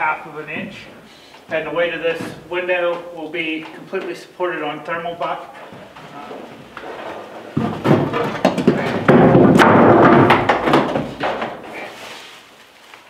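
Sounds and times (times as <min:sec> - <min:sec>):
knocks and thumps of window: 0:07.6 - 0:11.6.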